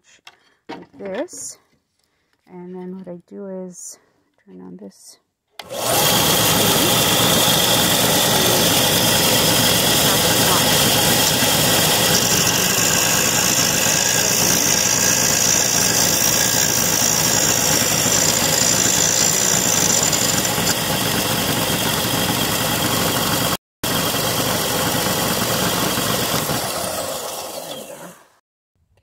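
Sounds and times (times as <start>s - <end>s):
disc sander running: 5.6s - 28.2s.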